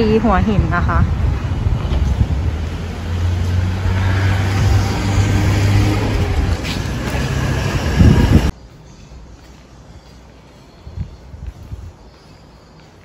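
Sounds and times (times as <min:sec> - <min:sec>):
street noise: 0:00.0 - 0:13.0
vehicle engine humming: 0:00.8 - 0:08.6.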